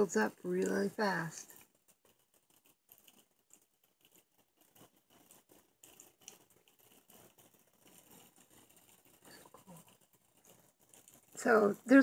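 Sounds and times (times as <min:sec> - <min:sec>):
soft crackles: 0:00.0 - 0:12.0
faint hiss: 0:04.0 - 0:12.0.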